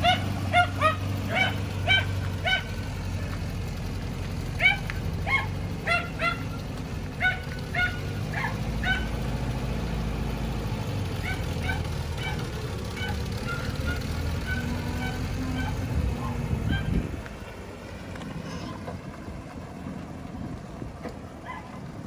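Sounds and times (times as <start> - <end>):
high-pitched animal calls: 11.2 - 17.0.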